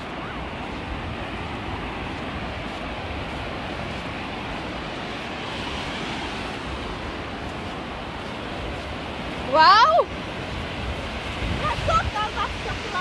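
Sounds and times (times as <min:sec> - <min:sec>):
ocean surf breaking: 0:00.0 - 0:13.0
wind buffeting microphone: 0:00.0 - 0:13.0.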